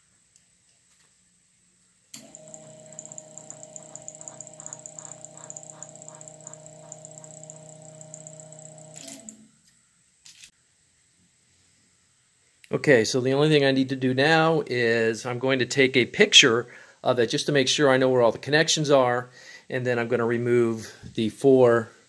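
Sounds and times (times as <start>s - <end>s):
electric motor humming and whining: 2.2s - 9.3s.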